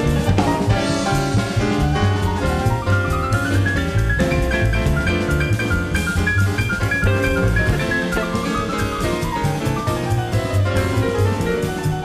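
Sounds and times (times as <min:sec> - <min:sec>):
bass: 0:00.0 - 0:12.0
drum kit: 0:00.0 - 0:12.0
keyboard melody: 0:00.0 - 0:12.0.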